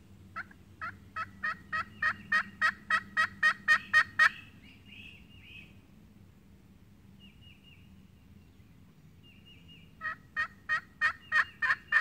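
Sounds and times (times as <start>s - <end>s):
turkey call hen yelps: 0.4s - 4.4s, 10.0s - 12.0s.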